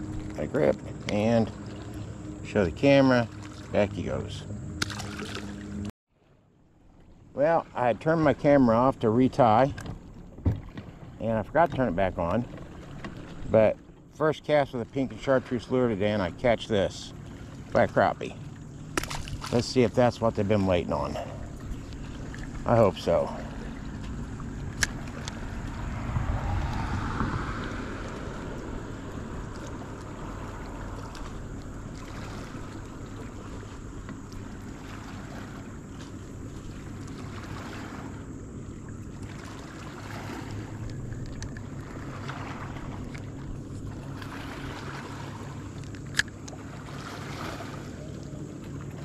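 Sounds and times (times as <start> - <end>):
small waves lapping at boat: 0.0 - 49.0
wind on microphone: 24.7 - 31.2
rush of noise: 25.0 - 29.6.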